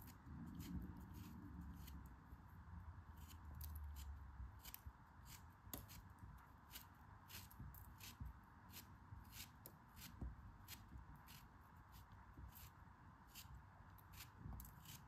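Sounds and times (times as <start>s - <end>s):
knife slicing kinetic sand: 3.1s - 15.0s.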